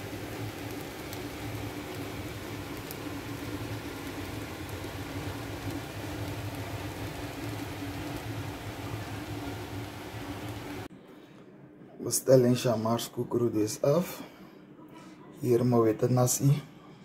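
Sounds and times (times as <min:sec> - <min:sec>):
fan running: 0:00.0 - 0:11.4
low hum: 0:00.0 - 0:12.0.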